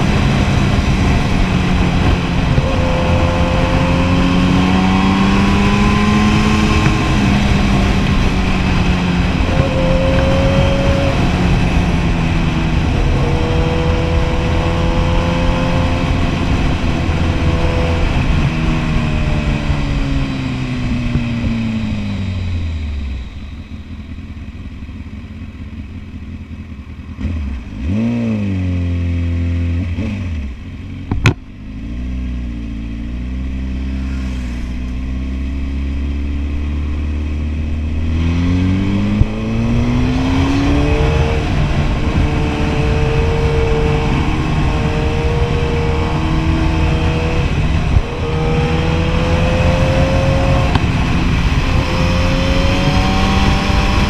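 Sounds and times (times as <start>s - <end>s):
motorcycle engine: 0.0s - 54.0s.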